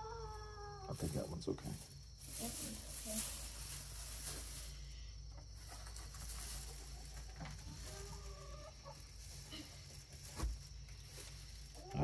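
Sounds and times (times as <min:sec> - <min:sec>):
chickens clucking: 0:05.3 - 0:10.0.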